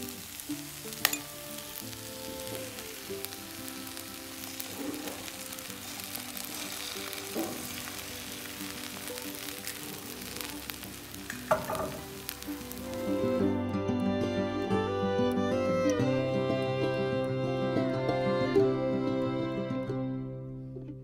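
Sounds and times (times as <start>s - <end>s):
bread frying in pan sizzling: 0.0s - 13.6s.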